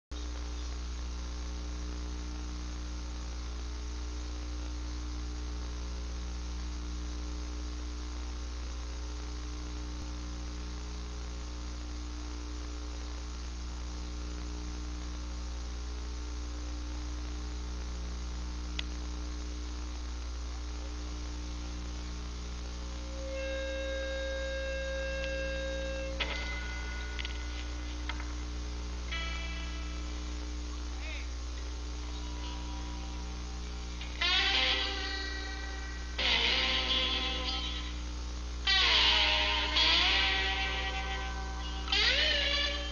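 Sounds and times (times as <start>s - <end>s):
electrical mains hum with hiss: 0.1s - 42.9s
faint click: 18.7s - 19.0s.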